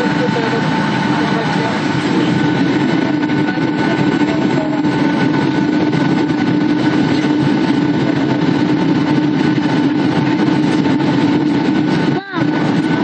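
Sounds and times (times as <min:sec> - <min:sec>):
constant cabin hum: 0:00.0 - 0:13.0
jet engine drone: 0:00.0 - 0:13.0
rushing air: 0:00.0 - 0:13.0.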